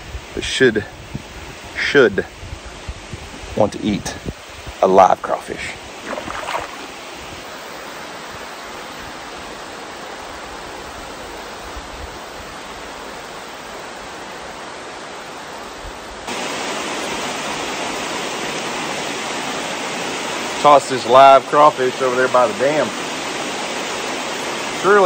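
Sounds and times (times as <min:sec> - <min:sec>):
water pouring over dam: 0:06.0 - 0:07.0.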